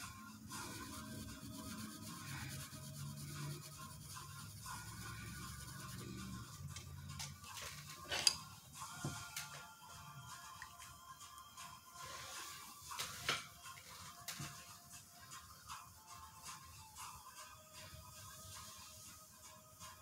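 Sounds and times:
marker scratching on paper: 0:00.0 - 0:06.6
quiet instrumental music: 0:00.0 - 0:20.0.

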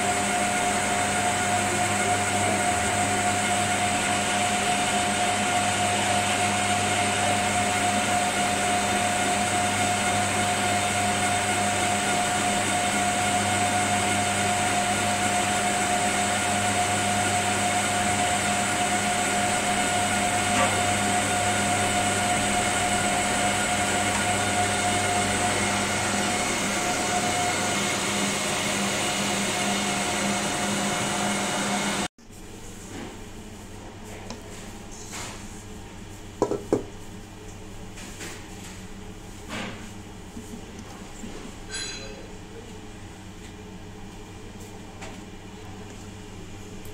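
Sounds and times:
electric machine humming: 0:00.0 - 0:32.1.

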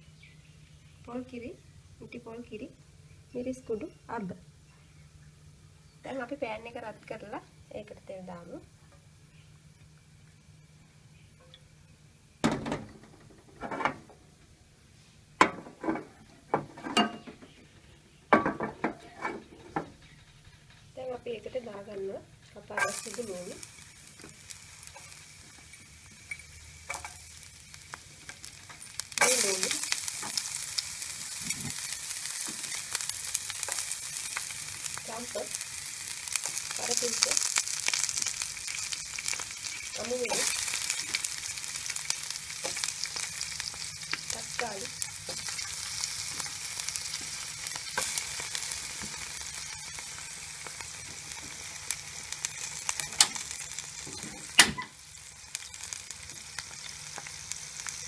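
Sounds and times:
vegetables sizzling in hot oil: 0:20.9 - 0:58.0.

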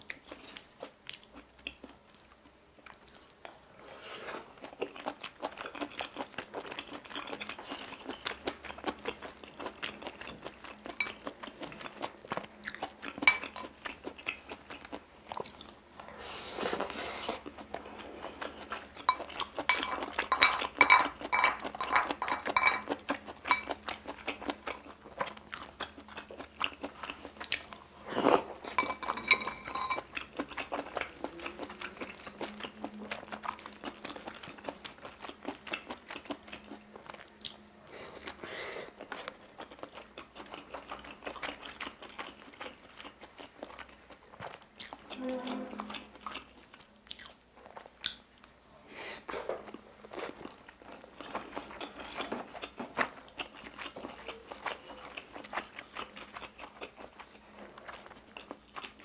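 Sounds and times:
chewing and biting food: 0:04.3 - 0:15.8, 0:16.6 - 0:45.2, 0:45.8 - 0:48.6, 0:49.6 - 0:59.0
utensils clinking: 0:19.1 - 0:22.9, 0:28.7 - 0:30.1
spoon scraping ceramic bowl: 0:28.7 - 0:30.1.

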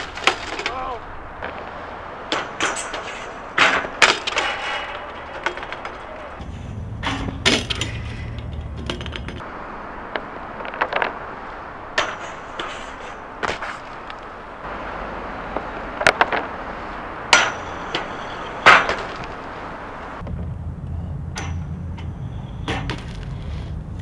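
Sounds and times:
bike clanking on metal rail: 0:00.0 - 0:09.5, 0:11.9 - 0:14.1, 0:17.3 - 0:19.5, 0:21.2 - 0:23.4.

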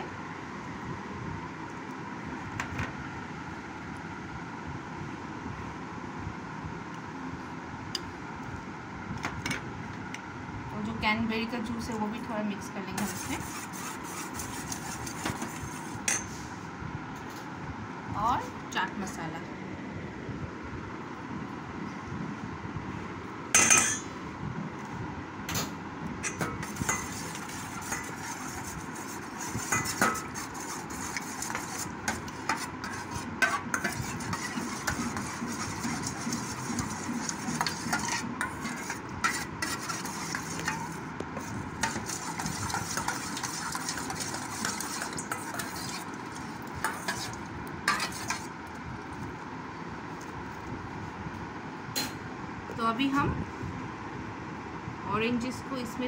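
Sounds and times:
metal spoon stirring in steel bowl: 0:12.8 - 0:16.4, 0:26.2 - 0:48.6.

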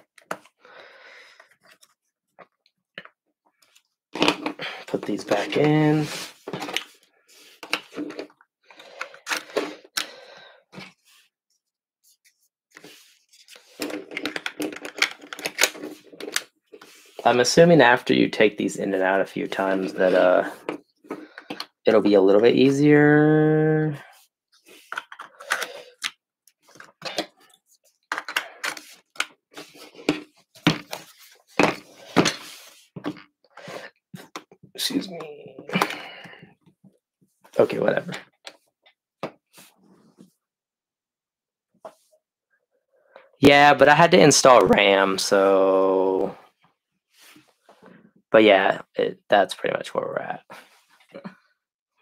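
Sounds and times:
plastic parts scraping: 0:03.6 - 0:11.1, 0:12.8 - 0:17.3, 0:24.6 - 0:34.5.

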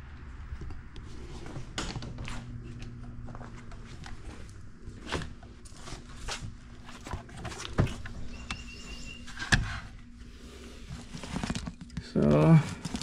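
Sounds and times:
steady low hum: 0:00.0 - 0:13.0
knocks and rustles: 0:01.4 - 0:08.4.

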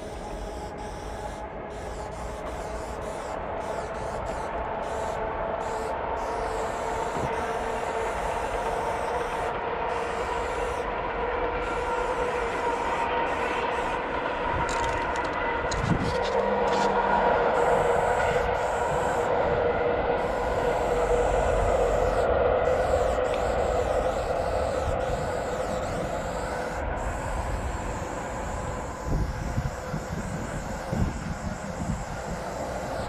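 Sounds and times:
spray paint can hissing: 0:00.0 - 0:10.8, 0:17.6 - 0:19.3, 0:20.2 - 0:33.0
passing vehicle rumble: 0:04.3 - 0:33.0.

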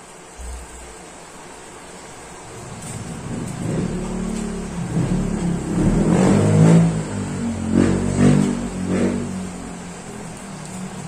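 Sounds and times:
engine revving: 0:02.4 - 0:10.4.

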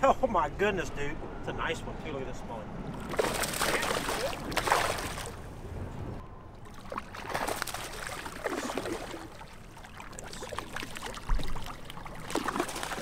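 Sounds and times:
fish splashing in water: 0:03.0 - 0:05.4, 0:06.5 - 0:13.0.

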